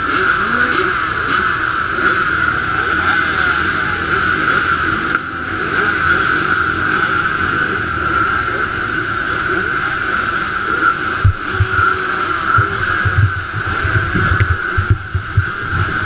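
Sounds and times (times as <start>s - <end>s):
motocross engines revving: 0.0s - 16.0s
low thumps: 11.2s - 11.8s, 12.6s - 16.0s.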